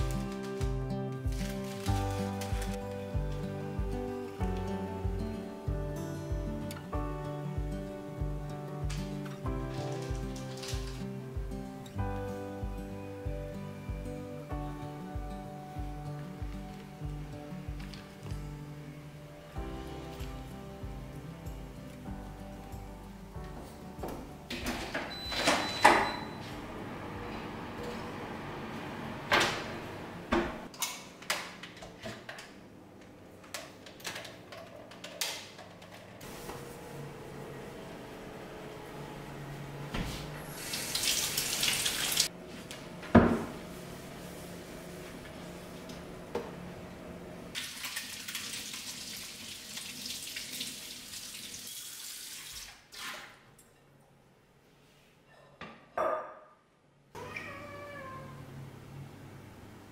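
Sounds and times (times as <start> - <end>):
tap running water into sink: 40.6 - 42.3, 47.6 - 53.3.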